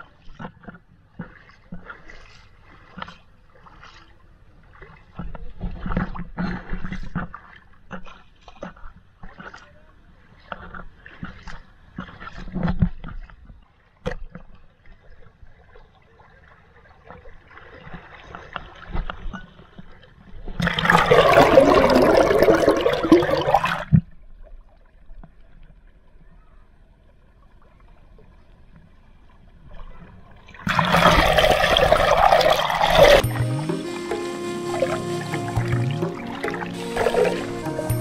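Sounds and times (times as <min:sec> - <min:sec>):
stream water splashing: 0:00.0 - 0:26.1, 0:27.2 - 0:38.0
water trickling and lapping: 0:00.0 - 0:38.0
rushing gurgling water underwater: 0:20.4 - 0:24.1, 0:30.4 - 0:33.3, 0:34.7 - 0:37.7.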